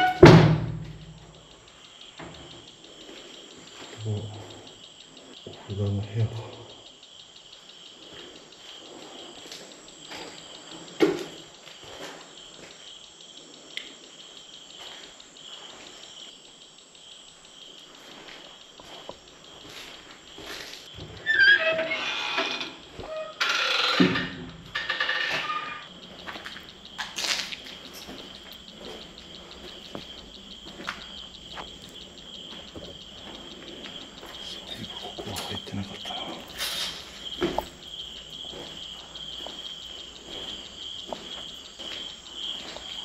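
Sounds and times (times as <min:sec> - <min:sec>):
crickets chirping: 0:00.0 - 0:43.0
light footsteps on debris: 0:18.0 - 0:21.0, 0:26.1 - 0:43.0.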